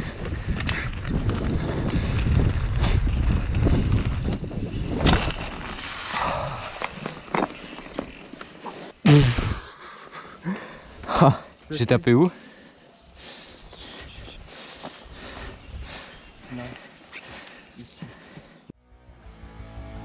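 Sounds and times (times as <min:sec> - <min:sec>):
wind rushing over microphone: 0:00.0 - 0:06.8
tyres rolling over dirt: 0:03.4 - 0:09.0.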